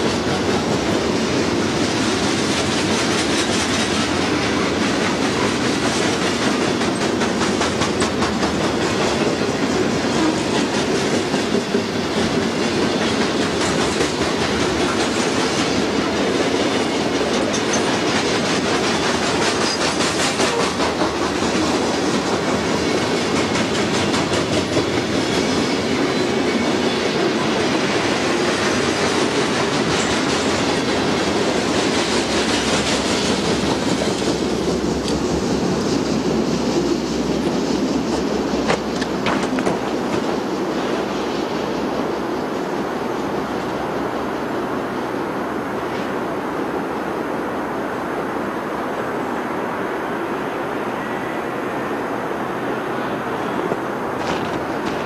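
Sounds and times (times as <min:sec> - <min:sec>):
freight train rumbling: 0:00.0 - 0:55.0
wheels clicking over rails: 0:37.4 - 0:40.4.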